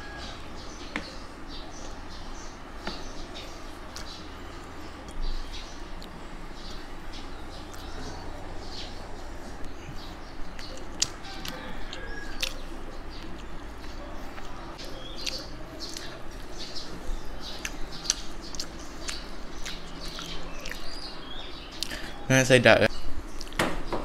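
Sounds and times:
steady low hum: 0.0s - 24.0s
chewing with wet clicks: 6.0s - 8.0s, 10.4s - 21.1s, 21.7s - 22.1s, 23.3s - 23.6s
lip smacks: 10.5s - 12.6s, 17.6s - 21.1s, 21.8s - 22.1s.

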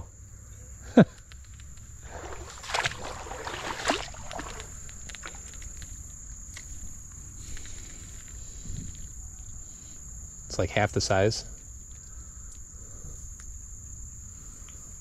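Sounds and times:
cricket trill: 0.0s - 15.0s
water splashing in a creek: 2.0s - 5.8s.

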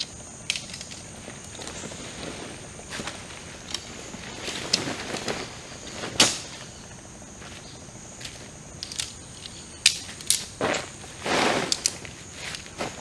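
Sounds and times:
tent poles clicking: 0.0s - 1.9s, 8.3s - 10.6s, 11.4s - 12.8s
insects buzzing: 0.0s - 13.0s.

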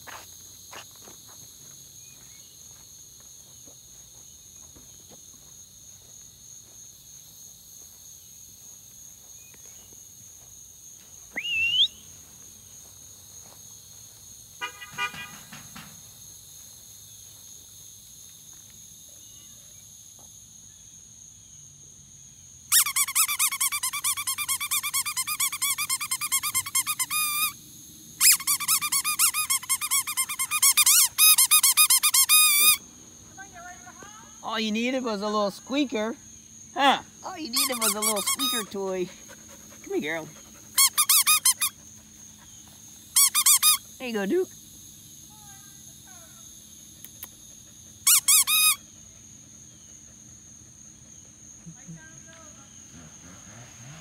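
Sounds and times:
rising whistle: 11.3s - 12.1s
rubber squeaker toy squeaking: 22.7s - 27.6s, 28.2s - 32.8s, 37.4s - 38.7s, 40.8s - 41.7s, 43.2s - 43.8s, 48.1s - 48.8s.

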